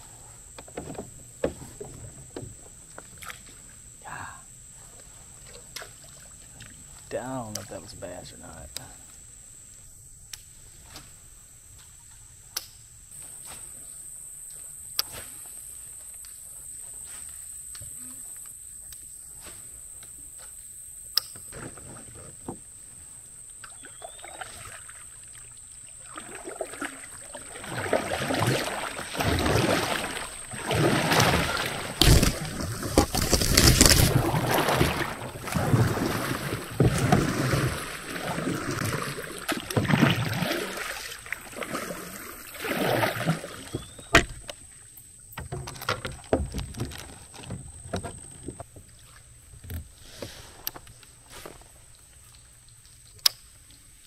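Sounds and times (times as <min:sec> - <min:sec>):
kayak paddle strokes in water: 0:00.0 - 0:09.9, 0:21.4 - 0:54.0.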